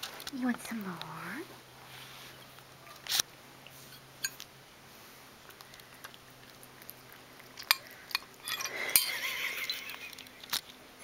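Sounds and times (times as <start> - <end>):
cat licking and chewing: 4.9 - 10.9.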